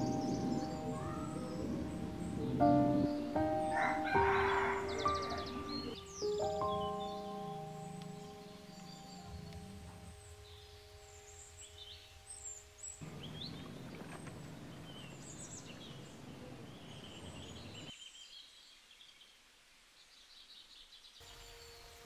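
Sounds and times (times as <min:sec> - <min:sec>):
small birds chirping: 0:00.0 - 0:22.0
water sprinkling hiss: 0:00.0 - 0:22.0.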